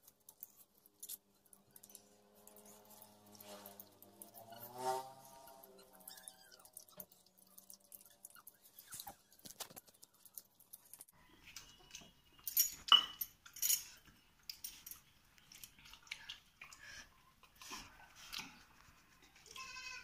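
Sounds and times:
chewing: 0.0s - 11.8s, 14.4s - 19.6s
metal clinks and knocks: 11.6s - 15.8s
steel dishes clinking: 12.5s - 14.0s.

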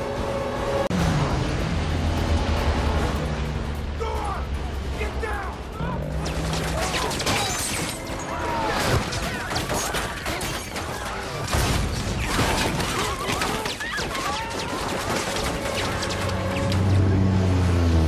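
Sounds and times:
crashing debris: 6.4s - 16.2s.

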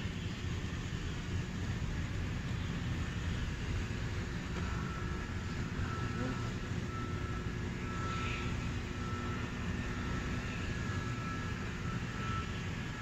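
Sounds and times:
low outdoor rumble: 0.0s - 13.0s
faint electronic beeps: 4.6s - 13.0s.

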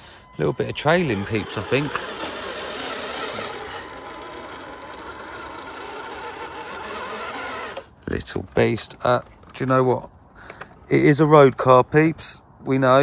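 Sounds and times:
electric motor and gearbox whir: 0.0s - 9.9s.

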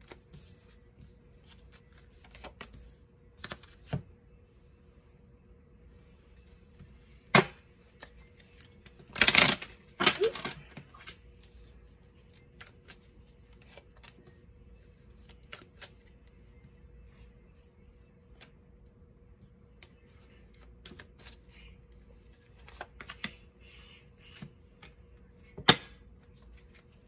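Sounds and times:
cards shuffling: 0.0s - 4.1s, 7.8s - 16.2s, 19.8s - 23.5s.

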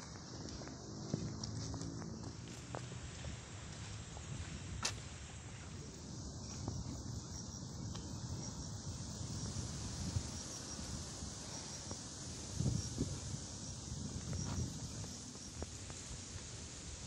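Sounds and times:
insects chirping: 0.0s - 17.0s
wind rumbling on microphone: 0.0s - 17.0s.

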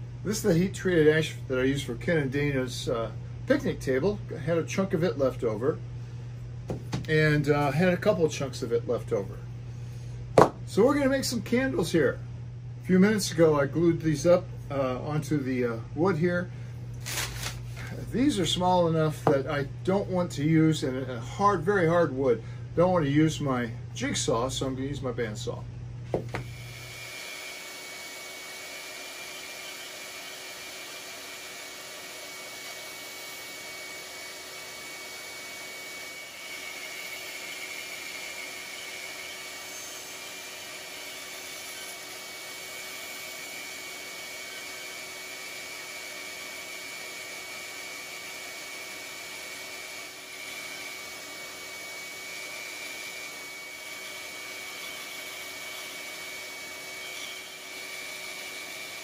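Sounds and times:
bandsaw cutting wood: 26.3s - 59.0s.

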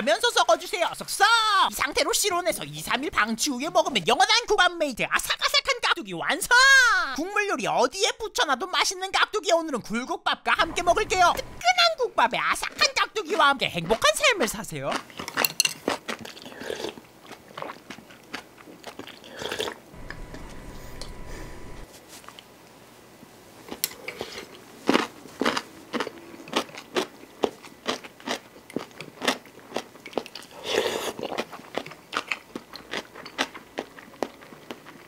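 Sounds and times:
chewing crunchy food: 14.9s - 19.8s, 23.7s - 35.0s.

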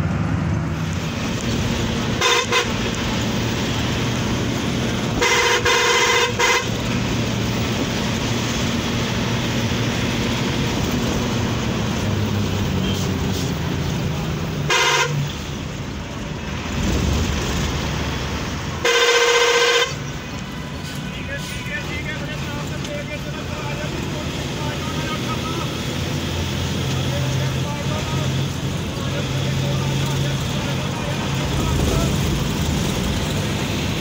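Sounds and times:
bus engine and road noise: 0.0s - 34.0s
bus horn blasts: 2.1s - 3.1s, 5.0s - 7.2s, 14.7s - 15.4s, 18.8s - 20.8s.

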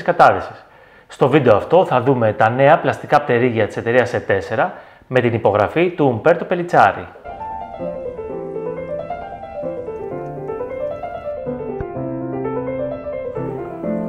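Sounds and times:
piano music: 7.2s - 14.0s.

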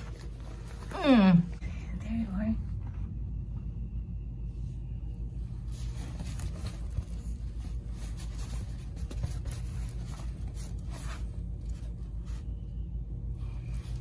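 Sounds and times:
fabric rustling and scraping: 0.0s - 1.6s, 5.4s - 12.8s.

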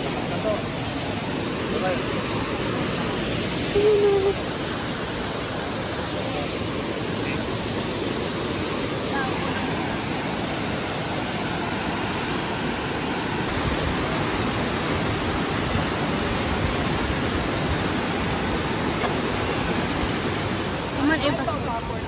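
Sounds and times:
waterfall rushing: 0.0s - 22.0s.

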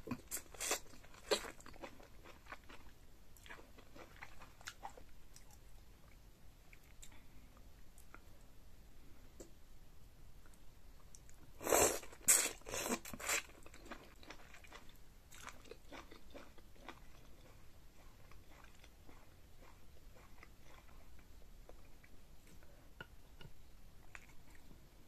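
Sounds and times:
chewing with wet mouth clicks: 13.2s - 24.7s.

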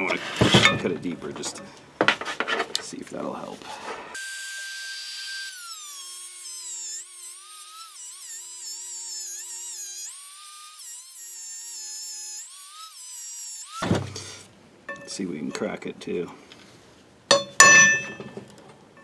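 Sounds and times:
rotary tool grinding steel: 3.7s - 14.4s.

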